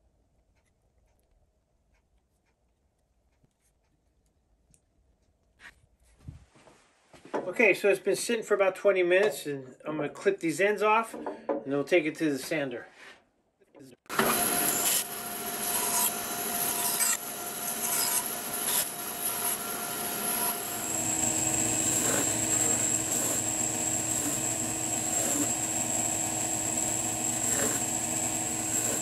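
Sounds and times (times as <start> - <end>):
bandsaw cutting wood: 14.1 - 29.0
belt sander whining: 14.1 - 29.0.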